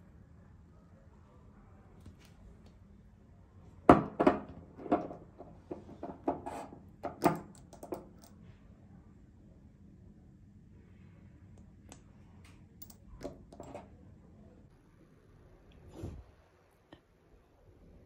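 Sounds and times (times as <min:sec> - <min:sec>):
glass bottle knocking on counter: 0:03.9 - 0:05.2.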